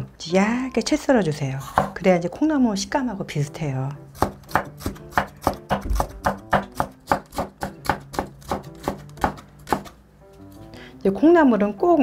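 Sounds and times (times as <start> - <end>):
light background music: 0.0 - 12.0
knife chopping on wooden board: 4.2 - 10.0.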